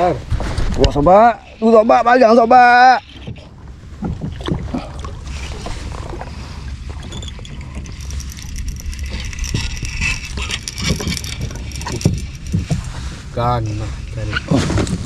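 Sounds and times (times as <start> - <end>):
wind rumbling on microphone: 0.0 - 2.1, 2.7 - 15.0
water sloshing around kayak: 0.3 - 15.0
knocks against hull: 3.9 - 4.8.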